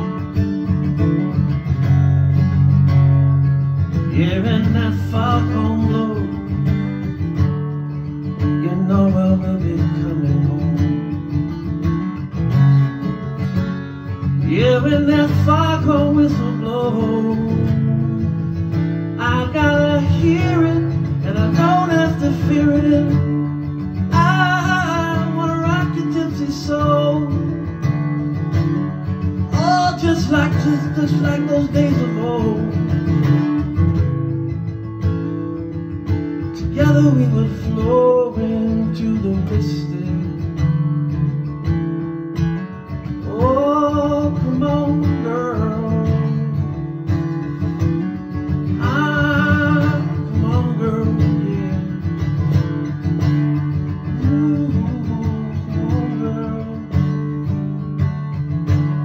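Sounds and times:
man singing: 0:00.0 - 0:00.4, 0:03.9 - 0:07.2, 0:08.4 - 0:11.4, 0:14.2 - 0:28.5, 0:29.3 - 0:34.1, 0:36.4 - 0:40.7, 0:42.9 - 0:47.0, 0:48.4 - 0:52.6, 0:53.6 - 0:57.5
strummed acoustic guitar: 0:00.0 - 0:59.0.

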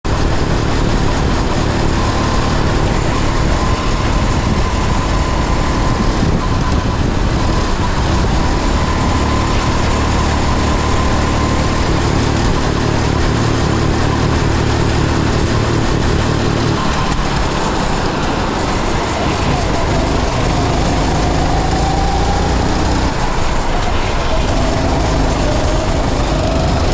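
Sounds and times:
high whine: 0:00.0 - 0:26.9
kart engine running: 0:00.0 - 0:26.9.

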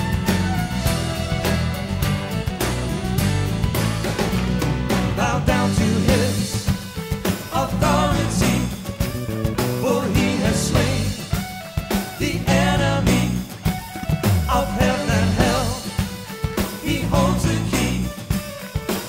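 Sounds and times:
pop-rock worship song: 0:04.0 - 0:19.0.

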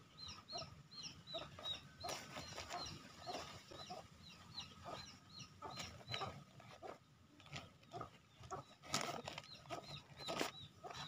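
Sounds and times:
chicks peeping: 0:00.0 - 0:11.0
chicken clucks: 0:00.1 - 0:11.0
soil scraping and rustling: 0:05.7 - 0:11.0.

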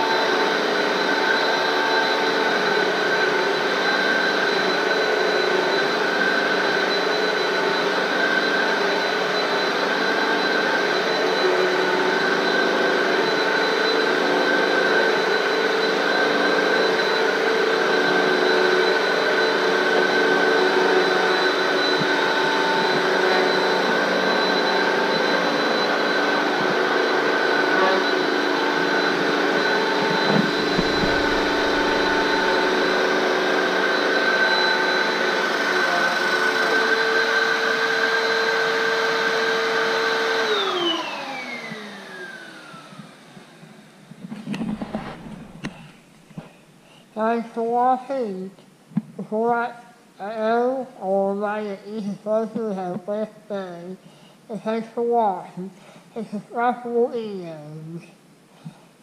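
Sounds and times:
upright vacuum cleaner whining: 0:00.0 - 0:46.8.

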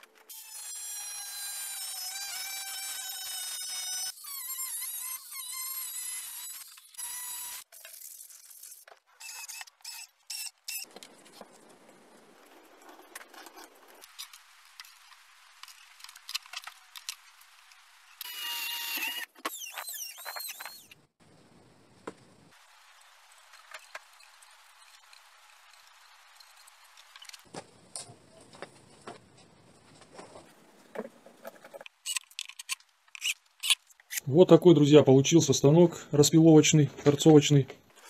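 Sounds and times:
angle grinder cutting plywood: 0:00.3 - 0:07.7, 0:18.2 - 0:20.9.

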